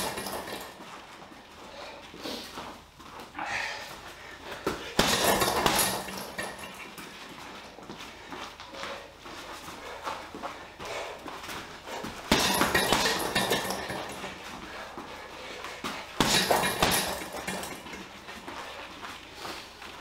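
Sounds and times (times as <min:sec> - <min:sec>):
boxing gloves punching heavy bag: 0:00.0 - 0:01.0, 0:04.4 - 0:08.0, 0:09.6 - 0:18.9.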